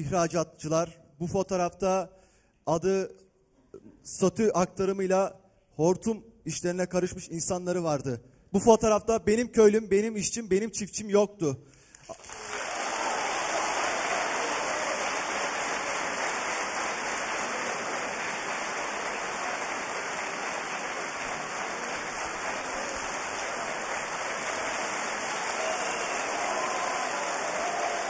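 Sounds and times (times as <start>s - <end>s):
audience applauding: 12.1s - 28.0s.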